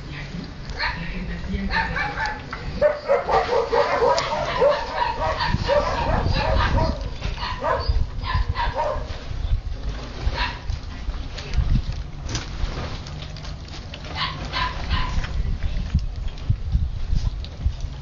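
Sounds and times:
puppies yipping and whimpering: 1.8s - 9.0s, 14.1s - 15.2s.

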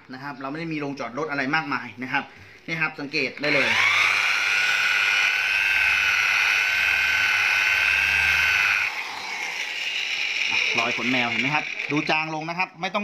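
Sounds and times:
car polisher motor whine: 3.4s - 12.1s.

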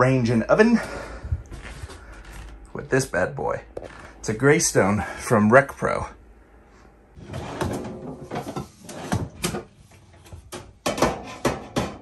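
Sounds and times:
metal baking sheet knocking oven: 10.8s - 12.0s.

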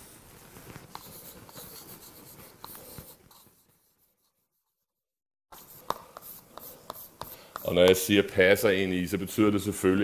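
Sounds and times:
chalk scratching on blackboard: 0.8s - 8.2s
chalk tapping: 0.9s - 4.8s, 5.5s - 8.2s.

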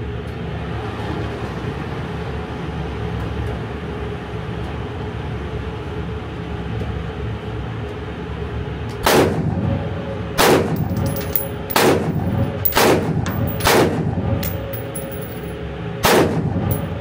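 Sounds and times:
rifle shots echoing indoors: 10.4s - 16.9s.

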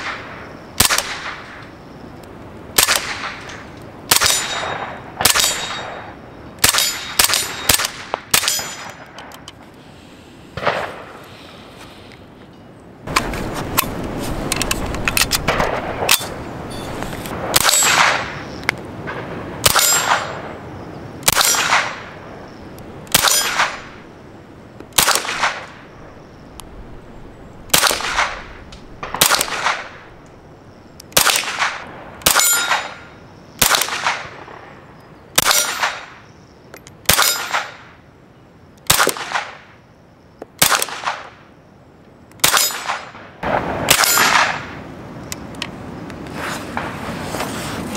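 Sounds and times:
rifle shots: 0.0s - 1.6s, 2.8s - 9.0s, 10.6s - 11.2s, 15.2s - 16.4s, 17.3s - 18.5s, 19.1s - 20.5s, 21.2s - 22.2s, 23.1s - 23.9s, 25.0s - 25.9s, 27.7s - 30.2s, 31.1s - 34.7s, 35.4s - 36.2s, 37.1s - 37.9s, 38.9s - 39.7s, 40.6s - 41.4s, 42.4s - 44.8s
steel target ringing clang: 4.2s - 6.0s, 8.4s - 9.0s, 19.7s - 20.4s, 32.3s - 33.1s.

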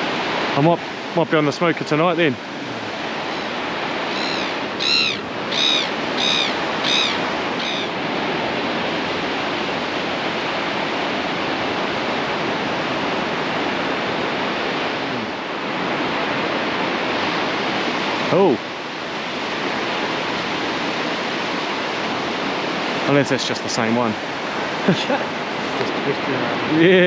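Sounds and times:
surf breaking on beach: 0.0s - 27.0s
bird calling: 2.4s - 8.1s.

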